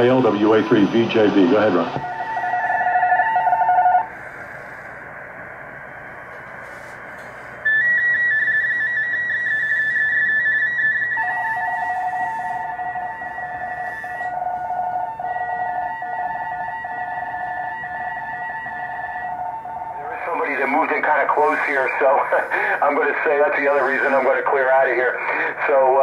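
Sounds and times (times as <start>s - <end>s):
radio band hiss: 0.0s - 15.8s, 19.2s - 26.0s
lower-pitched data signal: 6.6s - 25.2s
warbling two-tone data whistles: 7.6s - 20.6s.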